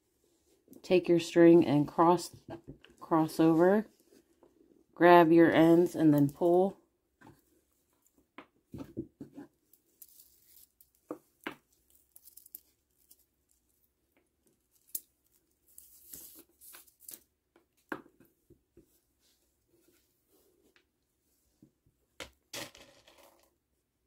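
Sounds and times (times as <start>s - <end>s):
string rubbing through beads: 10.0s - 11.0s.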